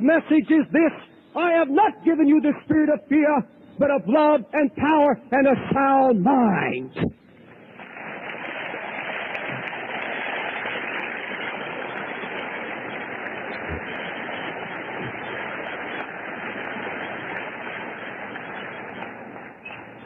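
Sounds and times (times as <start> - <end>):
audience applauding: 7.8 - 20.0.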